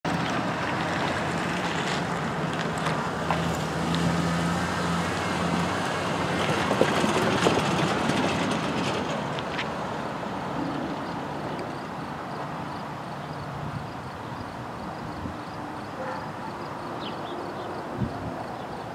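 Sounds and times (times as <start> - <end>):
pickup truck driving past: 0.1 - 11.9.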